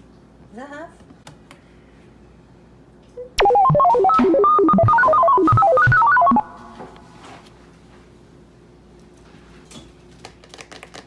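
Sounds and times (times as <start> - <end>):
electronic jingle: 3.2 - 6.9.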